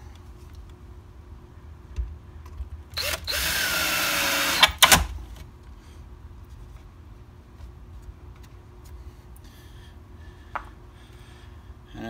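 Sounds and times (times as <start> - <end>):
cordless drill driving screw: 3.0 - 5.1.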